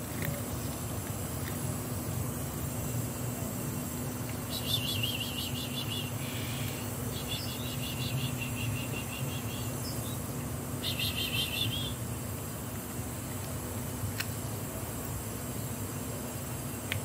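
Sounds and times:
high-pitched chirping trills: 4.5s - 10.2s, 10.8s - 12.0s.

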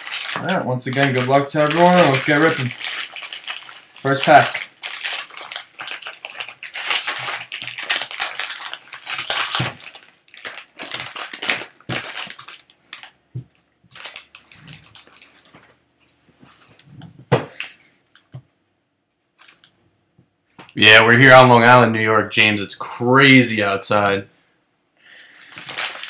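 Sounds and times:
foil wrapper tearing and crinkling: 0.0s - 13.2s, 13.9s - 15.5s, 25.2s - 26.0s.

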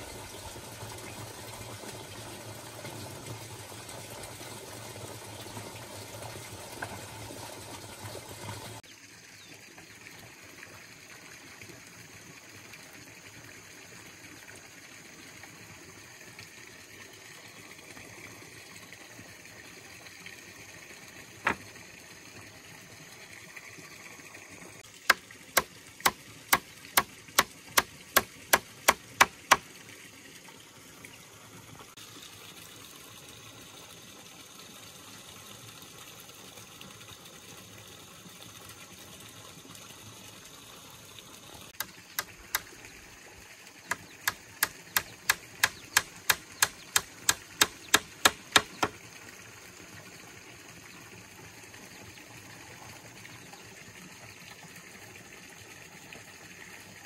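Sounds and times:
sharp knocks: 21.4s - 21.6s, 45.0s - 48.9s.

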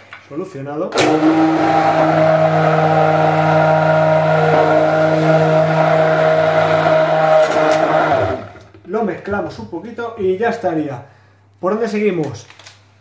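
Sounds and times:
immersion blender running: 1.0s - 8.9s.

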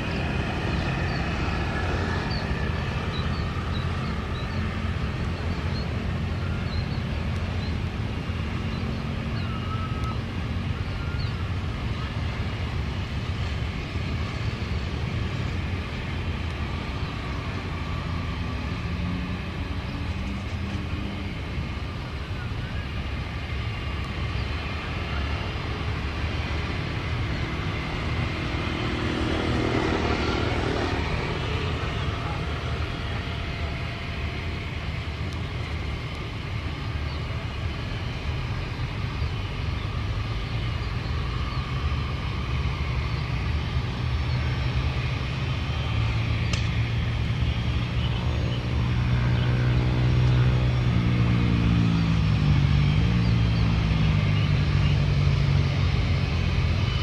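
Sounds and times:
jet engines rumbling: 0.0s - 57.0s
passing motorbike engine: 24.4s - 36.4s, 41.4s - 57.0s.

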